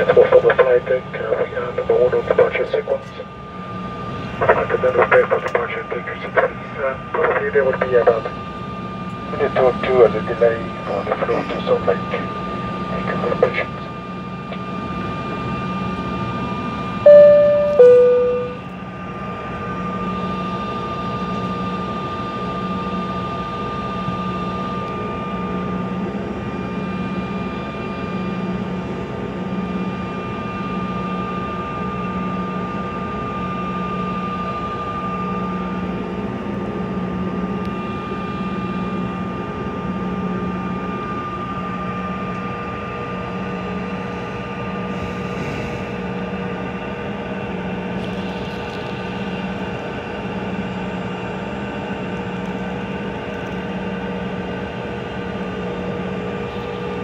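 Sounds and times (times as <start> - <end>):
airliner engines droning: 0.0 - 57.0
two-note cabin chime: 17.1 - 18.6.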